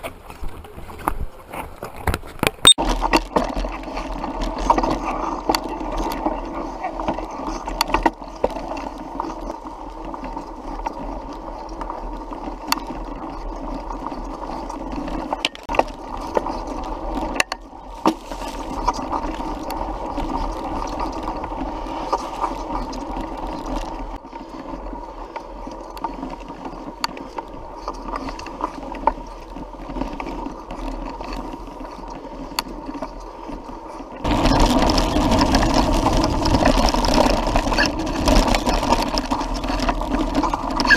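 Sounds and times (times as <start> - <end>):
bike clicks and rattles: 0.0 - 40.9
bike tyres and drivetrain whirring: 0.0 - 40.9.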